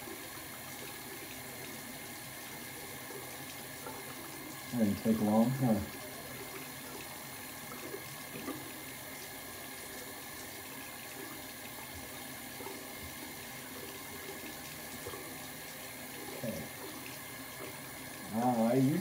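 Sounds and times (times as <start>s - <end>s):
faucet water running into sink: 0.0s - 19.0s.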